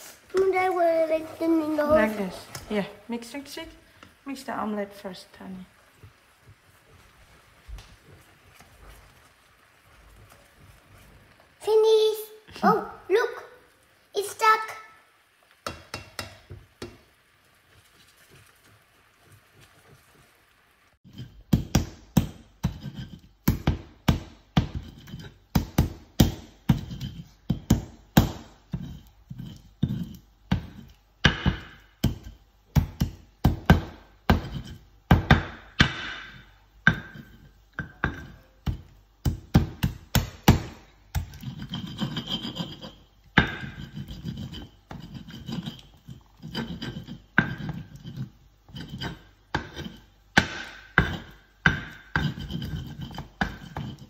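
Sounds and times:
pestle rubbing and scraping: 21.0 - 35.4, 36.9 - 54.0
stone pestle knocking in mortar: 21.1 - 45.8, 46.4 - 54.0.

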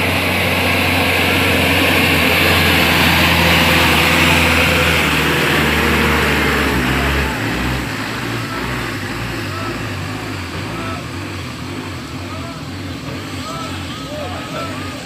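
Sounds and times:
bus diesel engine pulling uphill: 0.0 - 15.0.

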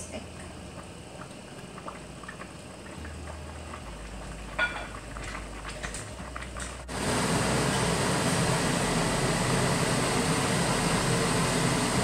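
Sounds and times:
water bubbling with low hiss: 0.2 - 7.2.

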